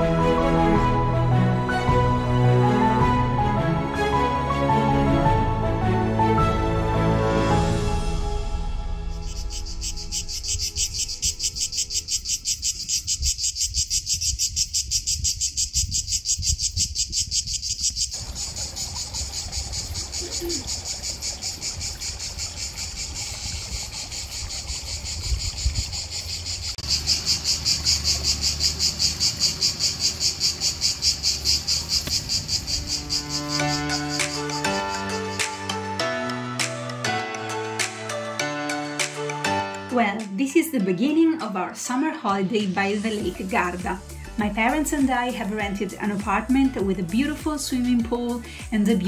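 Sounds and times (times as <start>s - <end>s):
insects singing in chorus: 8.6s - 36.2s.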